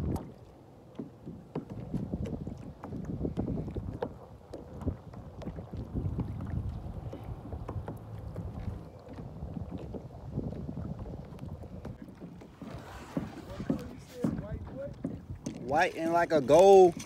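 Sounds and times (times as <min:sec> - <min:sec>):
wind buffeting microphone: 0:00.0 - 0:00.6, 0:01.2 - 0:17.0.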